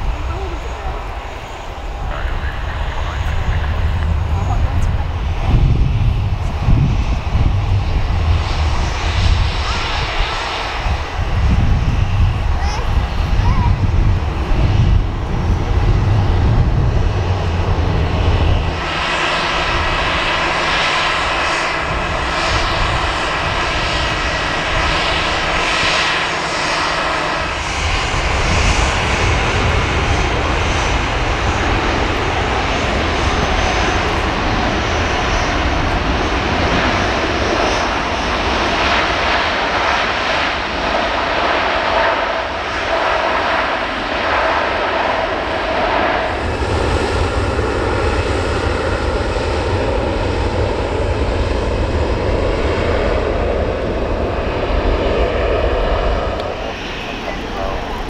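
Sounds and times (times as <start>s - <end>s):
broad even jet noise: 0.0s - 58.0s
jet engine whine over rumble: 0.0s - 58.0s.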